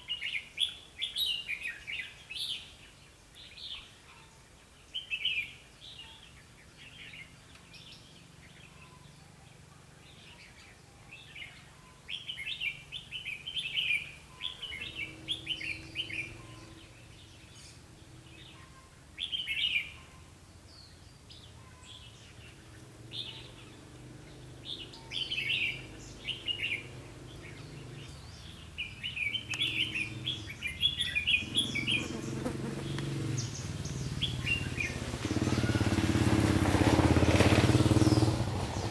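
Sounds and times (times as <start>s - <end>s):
birds singing bright phrases: 0.0s - 36.1s
low engine hum: 13.2s - 18.6s, 22.2s - 38.9s.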